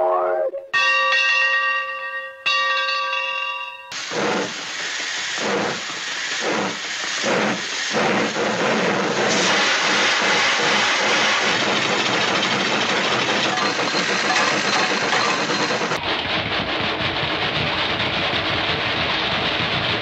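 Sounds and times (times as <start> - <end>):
loud hiss of steam: 3.9 - 16.0
steam locomotive chuffs: 3.9 - 20.0.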